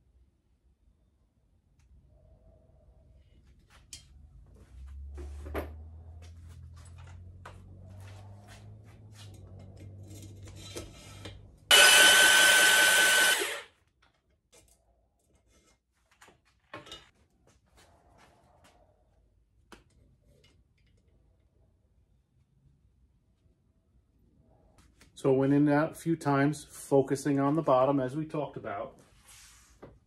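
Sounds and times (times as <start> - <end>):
electric drill whine with grinding: 11.7 - 13.7.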